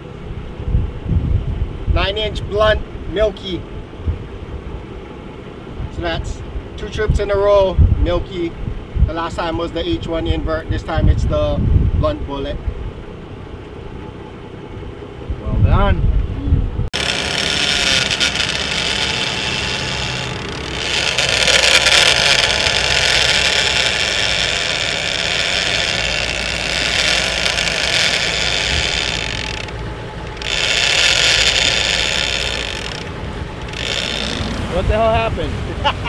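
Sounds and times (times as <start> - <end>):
boat engine and wake rumble: 0.0 - 36.0
fishing reel drag screaming: 17.0 - 34.8.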